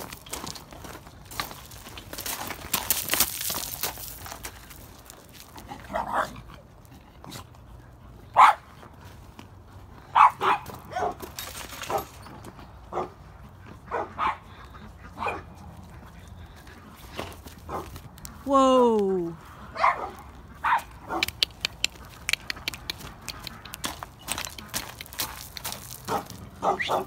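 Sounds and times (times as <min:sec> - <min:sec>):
dog barking: 0:08.4 - 0:08.6, 0:10.1 - 0:11.2, 0:12.9 - 0:13.2, 0:13.9 - 0:14.5, 0:15.2 - 0:15.5, 0:17.7 - 0:17.9, 0:19.8 - 0:21.3, 0:26.1 - 0:27.0.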